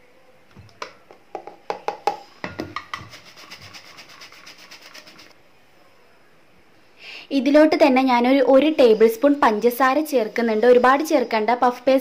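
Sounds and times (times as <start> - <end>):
flour sifter clicking and scraping: 2.8 - 5.3.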